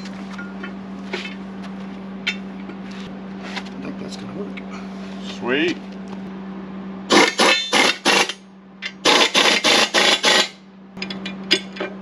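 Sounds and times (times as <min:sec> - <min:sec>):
impact wrench buzzing bursts: 0:07.1 - 0:08.4, 0:09.0 - 0:10.6.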